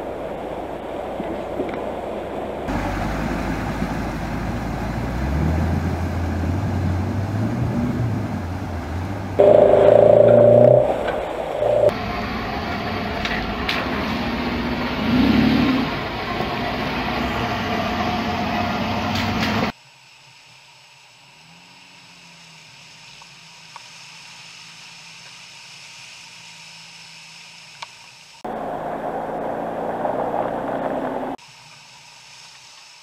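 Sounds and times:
car engine: 0.0 - 19.8, 28.4 - 31.4
loud rushing noise: 9.4 - 12.2.

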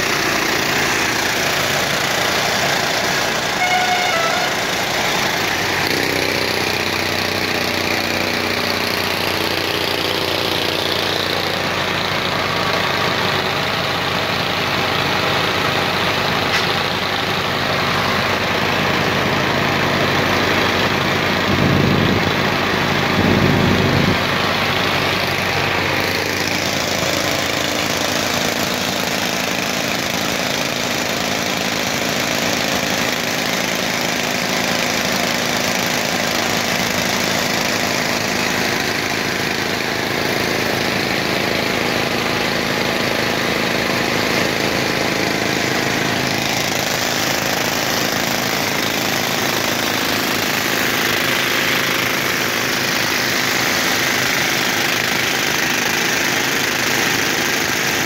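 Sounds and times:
tractor engine running: 0.0 - 58.0
air compressor knocking: 21.5 - 31.4.

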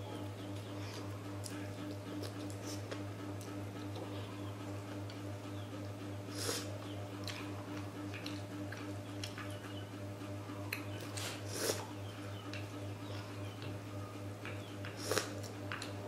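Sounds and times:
steady low hum: 0.0 - 16.0
chewing: 0.5 - 4.3, 6.3 - 9.6, 10.6 - 11.9, 14.4 - 16.0
slurping noodles: 11.2 - 11.9.

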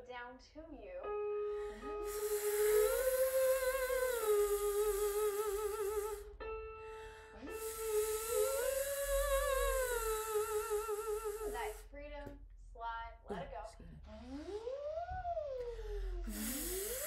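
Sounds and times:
singer sustaining buzzing v sound: 1.9 - 6.3, 7.5 - 11.9, 14.1 - 17.0.

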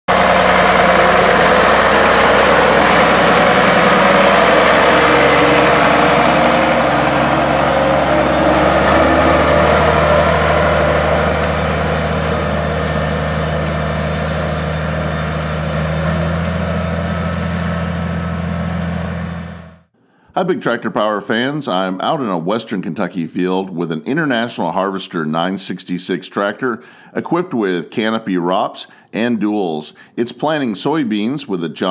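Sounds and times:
tractor engine running under load: 0.1 - 19.9.

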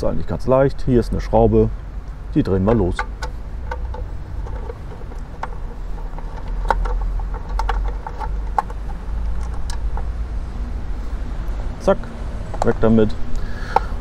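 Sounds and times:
steady low rumble: 0.0 - 14.0
tool clicks and taps: 2.7 - 10.1.

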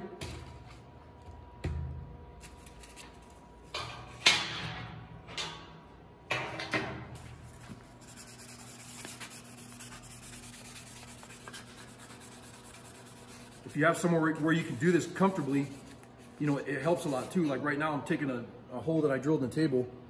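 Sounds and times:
hand rubbing metal on sandpaper: 7.5 - 17.4.

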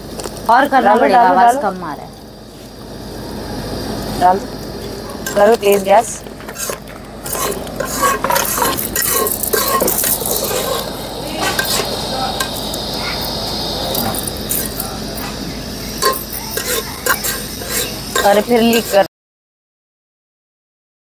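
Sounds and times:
food sizzling: 0.0 - 19.1
metal ladle clinking and scraping pot: 5.2 - 12.6, 16.0 - 19.1.

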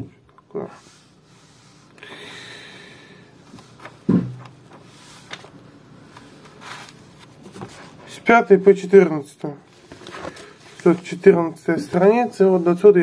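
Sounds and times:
book pages rustling: 3.4 - 8.2, 9.4 - 13.0.

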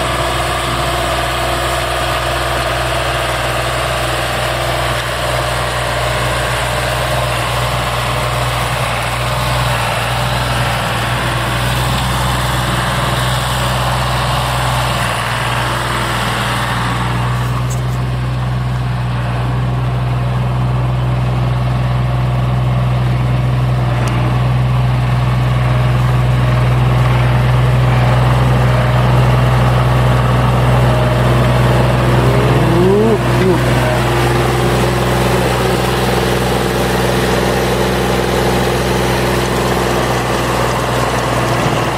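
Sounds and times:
tractor diesel engine running: 0.0 - 41.9.

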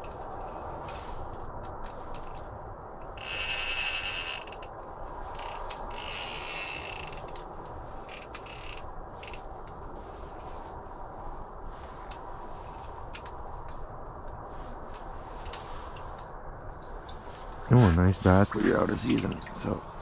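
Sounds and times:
fishing reel ratcheting: 3.2 - 4.7, 5.4 - 7.4, 8.0 - 9.4.

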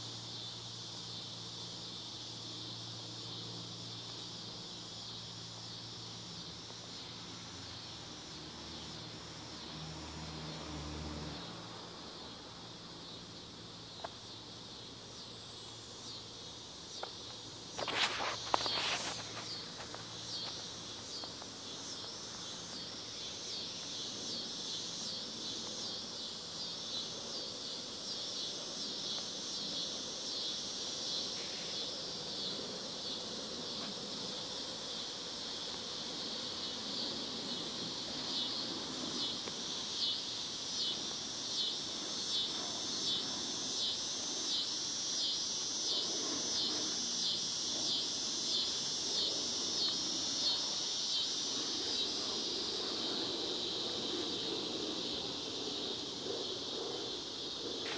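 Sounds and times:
insects calling: 0.0 - 57.9.

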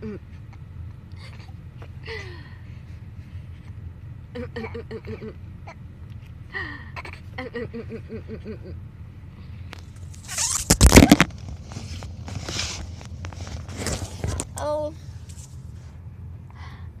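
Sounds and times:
microphone handling rubbing: 9.8 - 14.6.

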